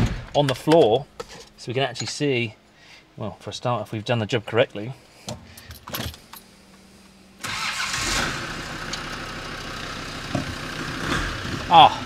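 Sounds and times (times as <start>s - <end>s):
diesel engine starting and idling: 7.4s - 12.0s.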